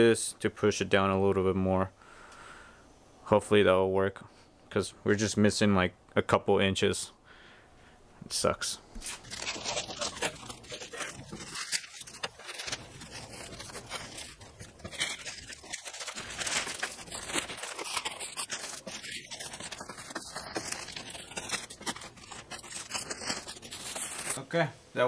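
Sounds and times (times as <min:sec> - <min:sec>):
plastic sheeting crinkling: 0:09.0 - 0:24.4.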